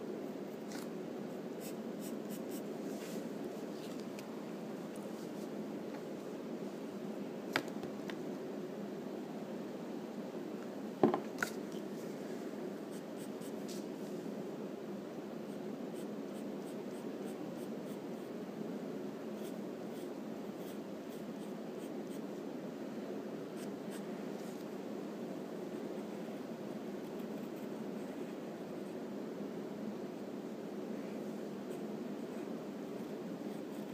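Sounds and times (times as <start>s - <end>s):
steady low hum: 0.0s - 33.9s
pencil scratching on paper: 33.5s - 33.9s.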